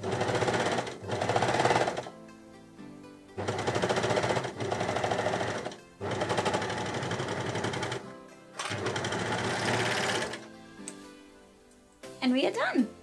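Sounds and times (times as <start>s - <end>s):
overlocker stitching fabric: 0.0s - 2.1s, 3.4s - 8.0s, 8.6s - 10.4s
background music: 0.0s - 13.0s.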